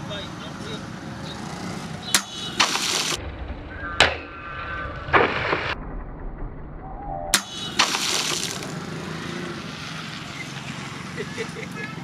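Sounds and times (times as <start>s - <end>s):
water splashing onto ground: 2.2s - 3.2s, 7.4s - 11.0s
blade slashing plastic bottles: 7.4s - 8.7s.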